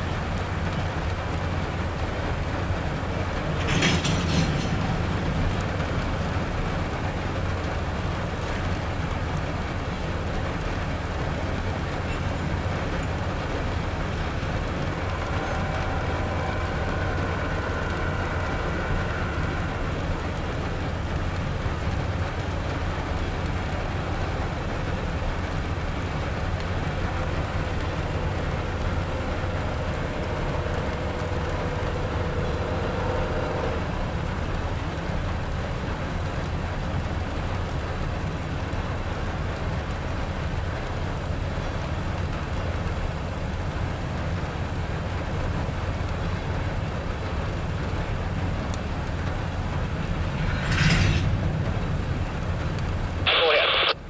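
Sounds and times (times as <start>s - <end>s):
freight train rumbling on rails: 0.0s - 53.3s
rain falling: 0.0s - 54.0s
faint whine: 10.4s - 37.8s, 46.2s - 54.0s.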